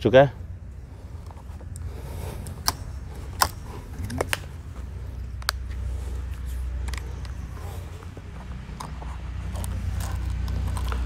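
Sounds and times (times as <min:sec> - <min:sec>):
rifle handling clicks and knocks: 0:01.2 - 0:07.5.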